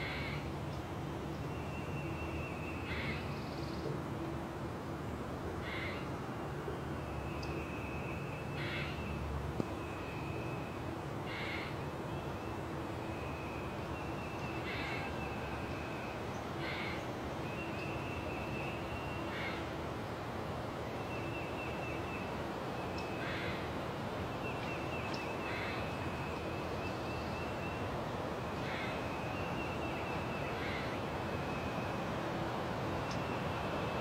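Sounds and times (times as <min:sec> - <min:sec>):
background hiss: 0:00.0 - 0:34.0
crows cawing: 0:05.6 - 0:06.0, 0:11.3 - 0:11.7, 0:16.6 - 0:17.0, 0:23.2 - 0:23.6, 0:28.6 - 0:29.0.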